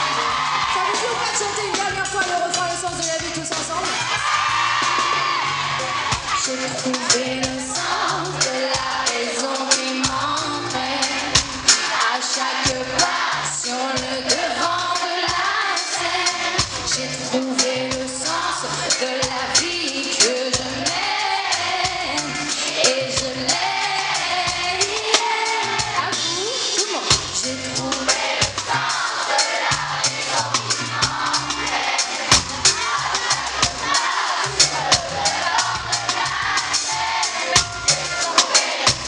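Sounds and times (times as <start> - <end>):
band with drums: 0.0 - 39.0
woman singing into microphone: 6.4 - 11.4, 12.0 - 16.1, 17.0 - 25.3.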